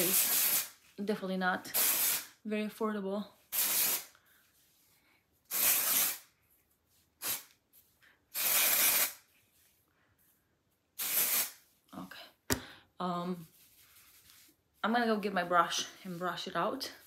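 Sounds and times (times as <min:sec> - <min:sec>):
aerosol spray hissing: 0:05.5 - 0:06.2, 0:11.0 - 0:11.6.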